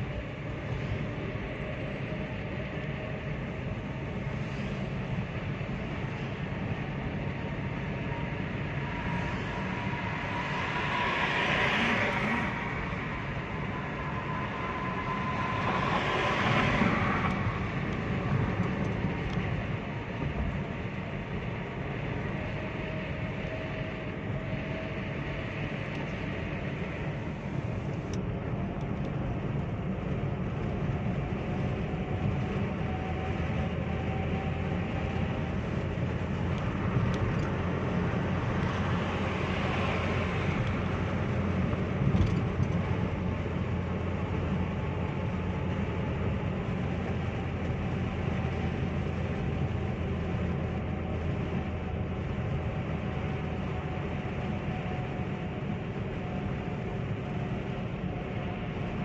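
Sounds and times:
engine and tyre drone: 0:00.0 - 0:59.0
car passing with rush: 0:08.9 - 0:19.2, 0:36.1 - 0:45.7.

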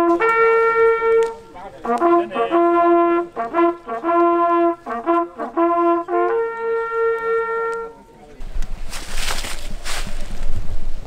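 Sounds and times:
hunting horns playing signal: 0:00.0 - 0:08.2.

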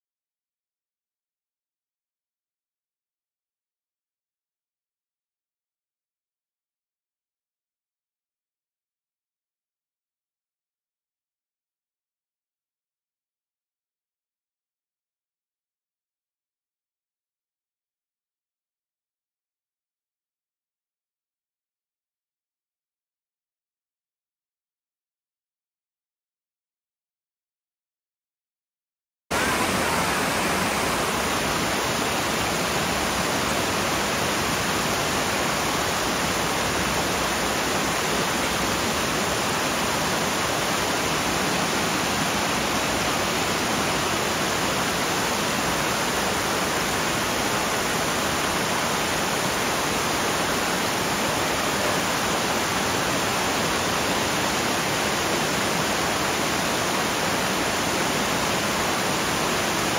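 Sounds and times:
water rushing over rocks: 0:29.3 - 0:59.9.

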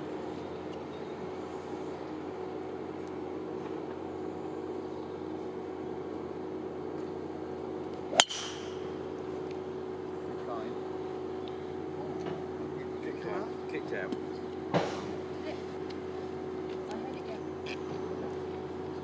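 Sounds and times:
steady low hum: 0:00.0 - 0:19.0
golf driver striking ball: 0:08.1 - 0:09.1.

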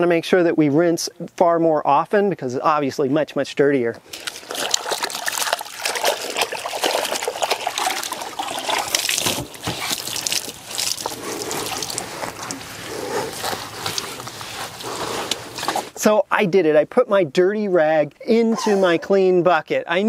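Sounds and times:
water sloshing in bucket: 0:04.0 - 0:16.0
water dripping and splattering: 0:04.1 - 0:12.8.

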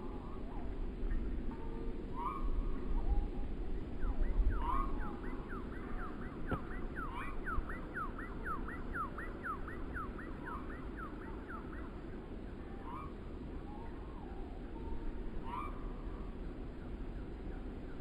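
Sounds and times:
bird singing whistled notes: 0:00.0 - 0:18.0
wind blowing through trees: 0:00.0 - 0:18.0
single bird calls: 0:02.1 - 0:03.4, 0:04.0 - 0:12.0, 0:12.7 - 0:16.4.

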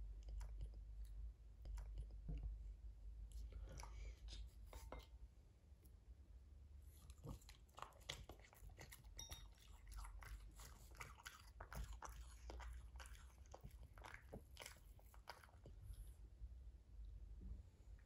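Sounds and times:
dog chewing food: 0:07.0 - 0:16.1.

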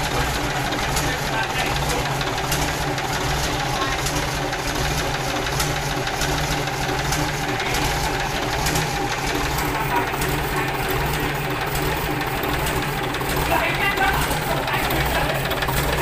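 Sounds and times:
diesel engine idling: 0:00.0 - 0:16.0.

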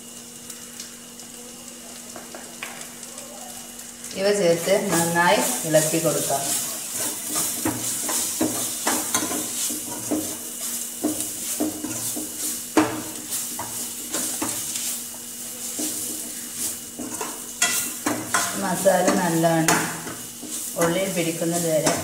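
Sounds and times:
masala sizzling in a pan: 0:00.0 - 0:22.0
utensil scraping a pan: 0:04.8 - 0:22.0.

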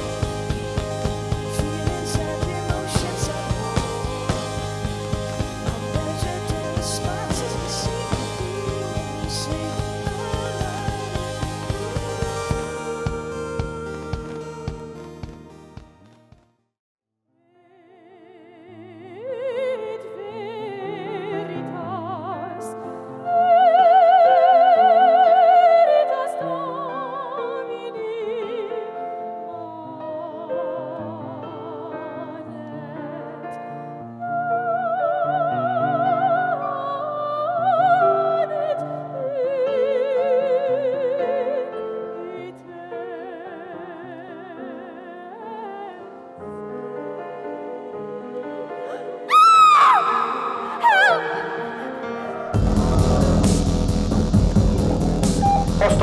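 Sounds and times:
sustained instrumental accompaniment: 0:00.0 - 0:16.4, 0:50.2 - 0:56.0
operatic solo singing: 0:01.4 - 0:15.0, 0:48.8 - 0:56.0.

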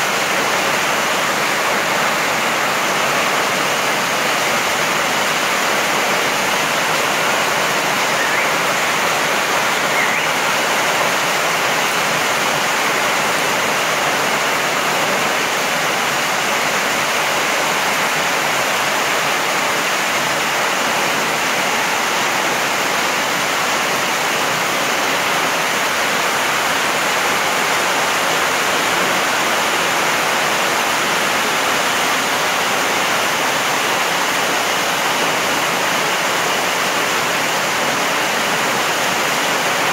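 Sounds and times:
heavy rain splashing on gravel: 0:00.0 - 0:39.9.

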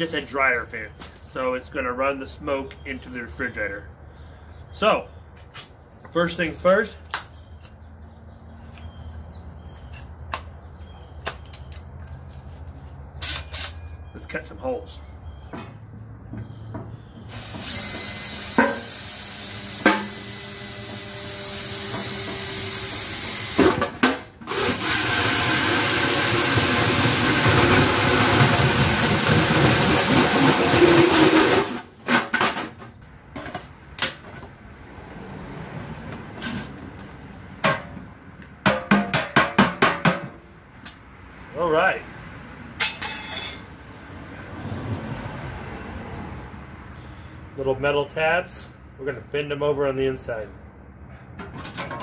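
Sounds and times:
drill cutting metal lid: 0:17.3 - 0:31.8.

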